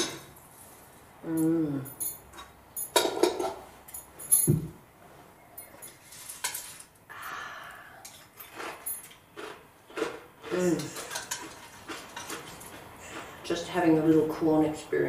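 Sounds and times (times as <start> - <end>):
person humming: 1.2 - 2.0
soft rustle: 5.0 - 6.9.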